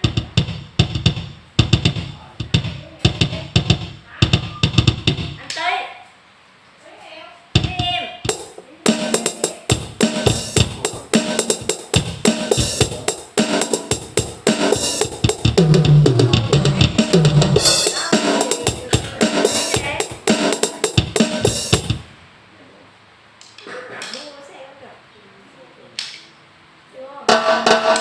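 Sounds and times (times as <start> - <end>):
electronic drum pattern: 0.0 - 5.4, 7.6 - 22.1, 27.3 - 28.0.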